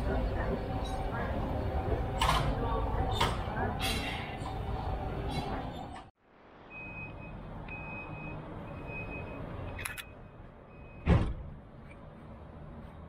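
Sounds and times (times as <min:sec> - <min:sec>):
tram humming: 0:00.0 - 0:06.1
repeated high warning beeps: 0:06.7 - 0:11.1.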